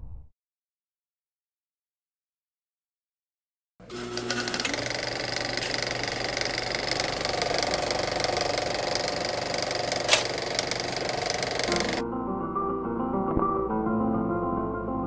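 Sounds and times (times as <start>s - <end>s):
film projector clattering: 3.8s - 12.0s
sharp click: 10.1s - 10.4s.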